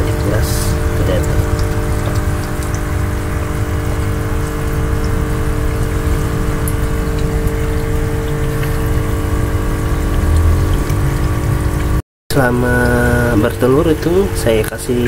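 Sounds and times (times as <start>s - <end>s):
low rumble: 0.0s - 12.0s
electric pump humming: 0.0s - 15.0s
water drips and splashes: 0.0s - 15.0s.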